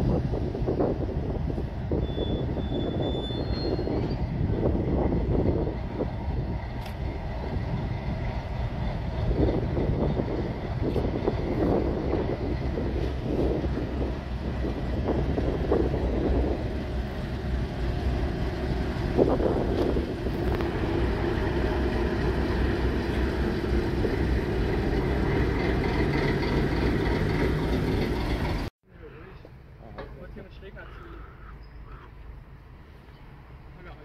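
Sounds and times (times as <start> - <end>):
train rumbling: 0.0 - 28.7.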